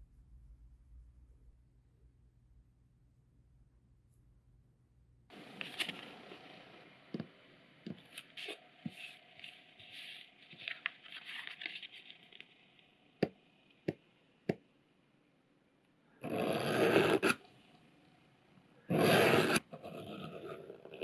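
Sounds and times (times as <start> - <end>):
paper rustling over leather: 8.2 - 12.4.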